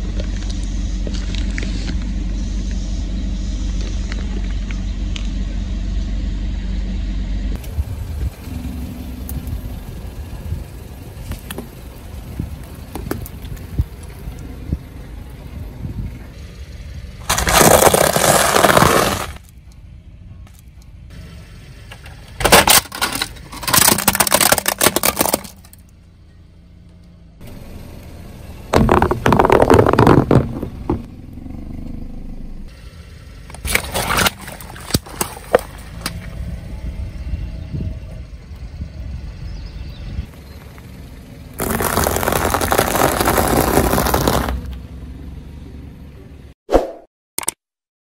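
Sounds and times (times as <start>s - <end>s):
low rumble: 0.0s - 18.8s, 25.7s - 33.6s
tyre crushing objects: 17.3s - 19.4s, 22.5s - 25.7s, 28.7s - 31.1s, 41.6s - 44.7s.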